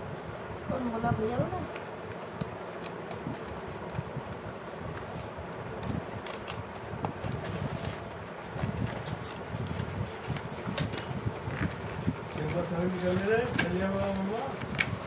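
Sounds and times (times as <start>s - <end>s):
steady background hum: 0.0s - 15.0s
scissors snipping paper: 1.7s - 8.0s
paper crinkling and rustling: 1.7s - 15.0s.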